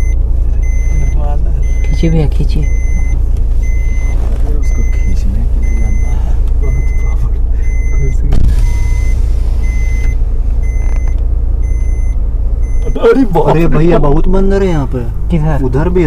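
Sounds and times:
reversing alarm beeps: 0.0 - 13.3
steady low rumble: 0.0 - 16.0.

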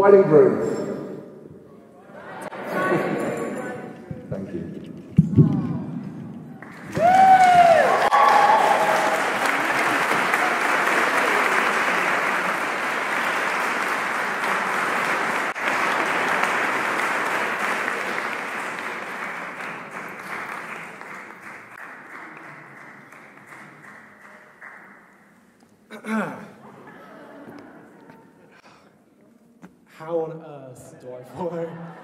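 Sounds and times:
guests applauding: 6.5 - 25.2.

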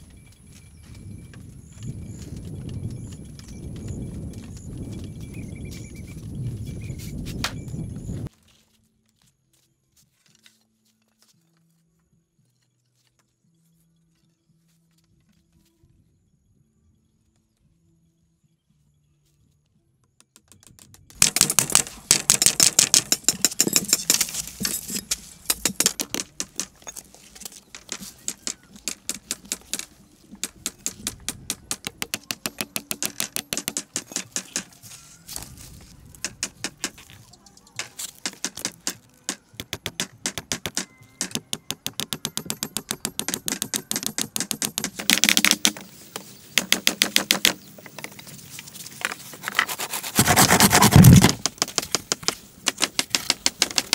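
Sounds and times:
hand tools clicking on bamboo: 20.3 - 34.8, 36.2 - 37.2, 37.8 - 48.2, 48.9 - 53.9.

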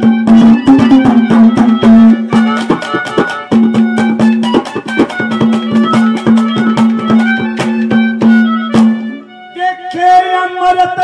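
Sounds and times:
fast drum strokes: 0.0 - 9.1.

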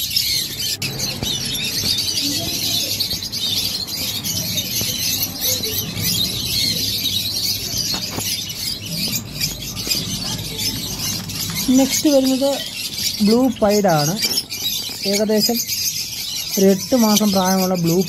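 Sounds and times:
lovebirds chirping and squeaking: 0.0 - 18.0.

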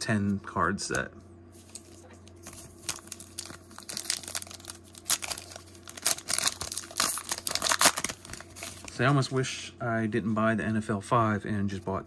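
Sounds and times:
foil wrapper crinkling and tearing: 1.6 - 9.0.

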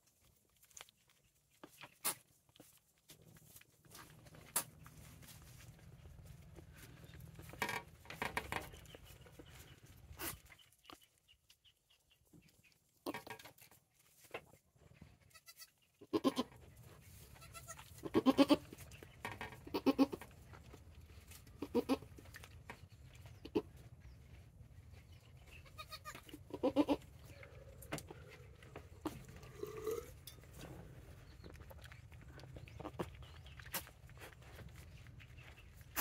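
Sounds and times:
goats bleating: 15.3 - 16.5, 17.3 - 18.8, 19.7 - 20.2, 21.6 - 22.1, 25.6 - 27.0.

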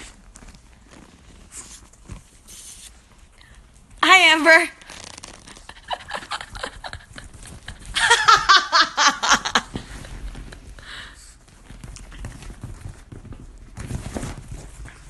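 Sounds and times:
woman laughing: 5.6 - 10.7.

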